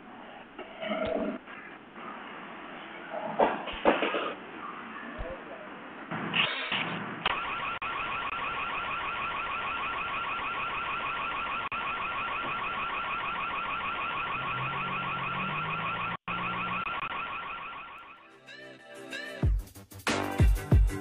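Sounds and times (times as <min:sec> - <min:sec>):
warbling alarm siren: 0:07.3 - 0:18.2.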